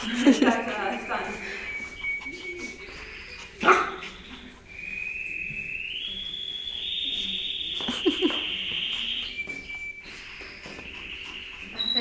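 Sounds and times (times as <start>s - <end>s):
puppy whining: 1.6s - 4.9s.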